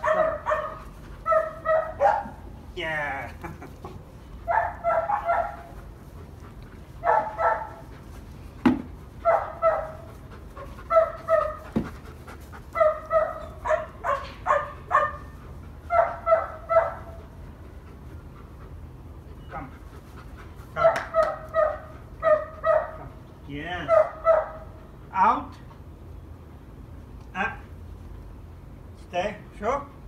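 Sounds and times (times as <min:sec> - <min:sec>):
dog barking excitedly: 0:00.0 - 0:02.4, 0:04.4 - 0:05.8, 0:07.0 - 0:07.9, 0:09.2 - 0:12.0, 0:12.6 - 0:17.3, 0:20.7 - 0:23.2, 0:23.8 - 0:24.9.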